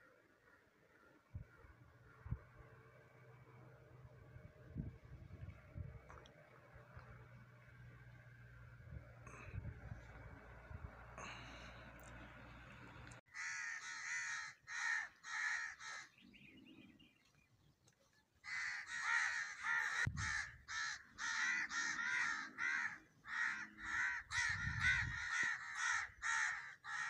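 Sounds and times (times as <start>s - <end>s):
crows cawing: 13.3s - 16.2s, 18.4s - 27.0s.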